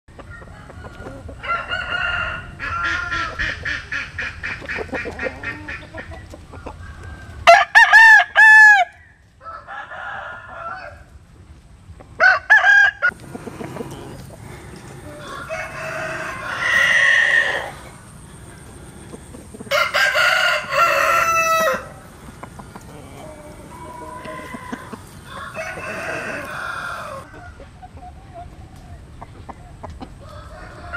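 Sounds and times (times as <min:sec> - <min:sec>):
roosters crowing: 0:00.1 - 0:11.3, 0:12.0 - 0:27.8, 0:30.0 - 0:30.9
rapid clucking: 0:13.1 - 0:15.2, 0:22.1 - 0:27.3.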